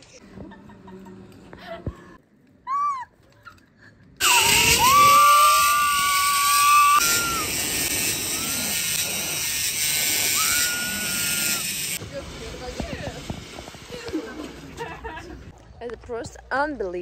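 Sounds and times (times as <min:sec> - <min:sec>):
zipline pulleys whining: 0:04.2 - 0:15.2.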